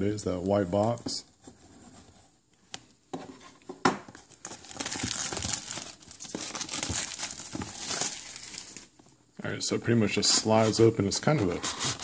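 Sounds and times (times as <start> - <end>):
plastic shrink wrap tearing and crinkling: 4.2 - 9.0.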